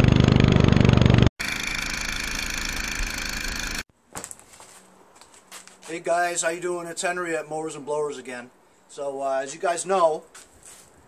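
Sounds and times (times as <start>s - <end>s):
higher-pitched engine running: 0.0s - 3.8s
lawn mower engine running: 0.0s - 3.8s.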